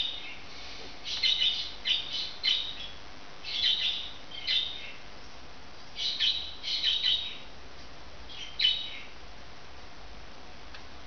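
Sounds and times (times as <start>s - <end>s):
budgerigar chirping: 1.0s - 5.0s, 6.0s - 7.5s, 8.3s - 9.1s.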